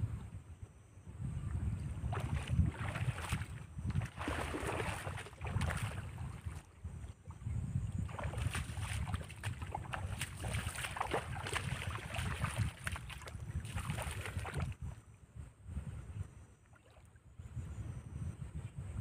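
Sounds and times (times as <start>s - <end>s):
wind rumbling on microphone: 0.0s - 19.0s
splashing in shallow water: 1.5s - 15.0s, 16.7s - 17.2s.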